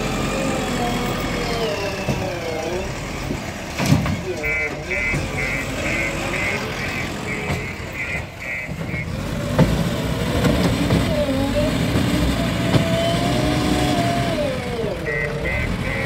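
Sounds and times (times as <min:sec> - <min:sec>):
diesel engine running: 0:00.0 - 0:16.0
reversing alarm beeping: 0:04.4 - 0:09.2, 0:14.9 - 0:16.0.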